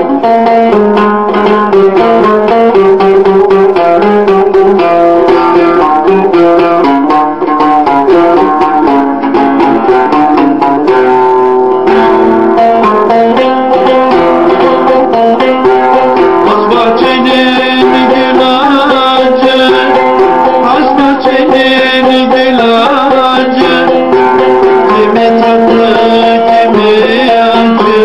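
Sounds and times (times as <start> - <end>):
banjo-lute picked with plectrum: 0.0 - 28.0.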